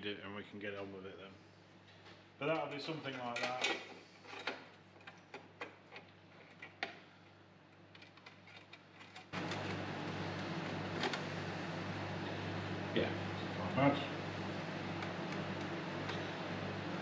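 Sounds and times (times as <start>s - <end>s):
mechanical hum and rush: 9.3s - 17.0s.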